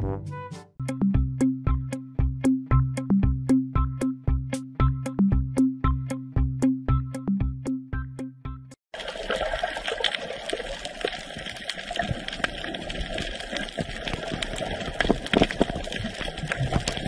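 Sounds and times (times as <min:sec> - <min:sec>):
music: 0:00.0 - 0:08.8.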